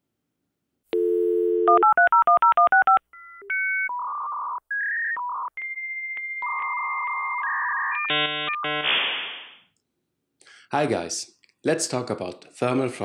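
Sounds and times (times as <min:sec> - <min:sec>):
telephone dial tone: 0:01.0 - 0:03.0
touch-tone dialing beeps: 0:01.0 - 0:08.8.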